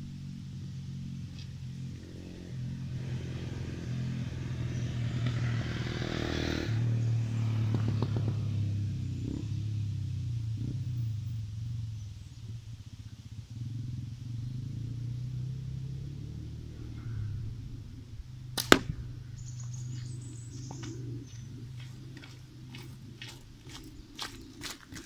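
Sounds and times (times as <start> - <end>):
sharp crack of ball hitting target: 18.5 - 19.2
slingshot snap: 18.6 - 19.0
footsteps on gravel: 19.6 - 25.0.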